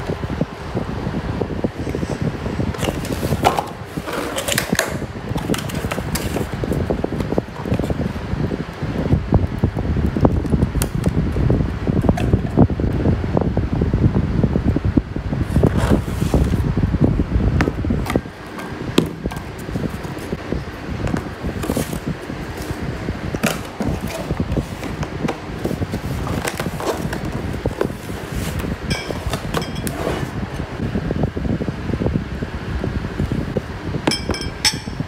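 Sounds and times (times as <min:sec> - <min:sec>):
glass bowls and lids clinking: 0:28.9 - 0:30.0, 0:34.1 - 0:35.0.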